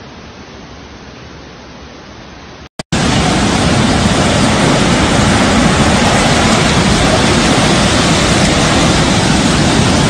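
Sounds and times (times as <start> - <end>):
muddy water rushing: 2.9 - 10.0.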